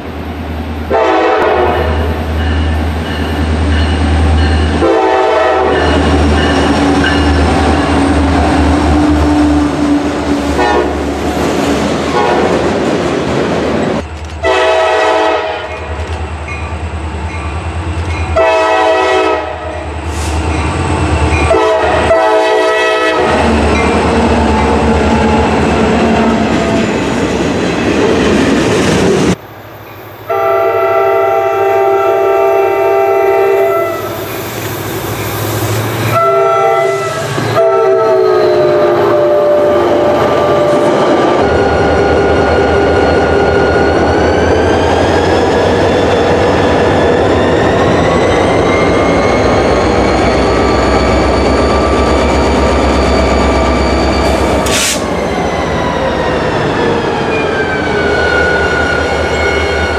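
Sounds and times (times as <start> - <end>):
rail noise: 0.0 - 59.9
multi-note train air horn: 0.9 - 2.1, 4.8 - 5.9, 10.6 - 11.0, 12.1 - 12.5, 14.4 - 15.8, 18.4 - 20.4, 21.5 - 23.5, 30.3 - 34.3, 36.1 - 40.9, 54.6 - 55.1.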